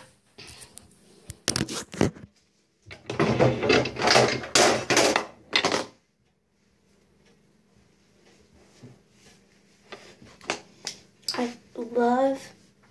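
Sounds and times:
objects clattering and rustling: 0:01.4 - 0:06.0.

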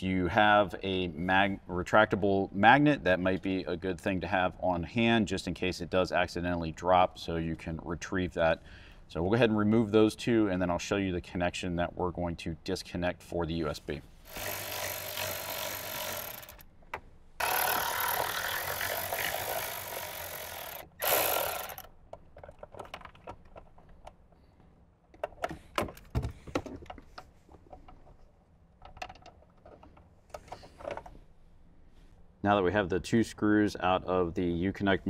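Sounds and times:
electric ratchet running: 0:14.3 - 0:16.7, 0:17.4 - 0:21.9
screws and plastic clicking: 0:14.3 - 0:24.3.

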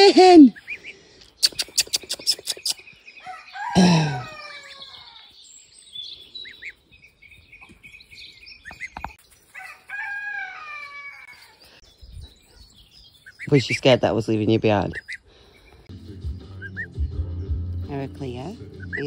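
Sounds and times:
gosling peeping: 0:00.5 - 0:03.1, 0:06.2 - 0:09.3, 0:12.1 - 0:17.2, 0:17.9 - 0:19.0.

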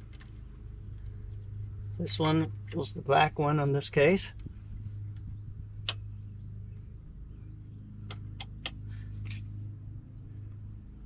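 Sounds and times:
steady low hum: 0:00.0 - 0:11.0
light metallic clicks: 0:05.1 - 0:06.2.

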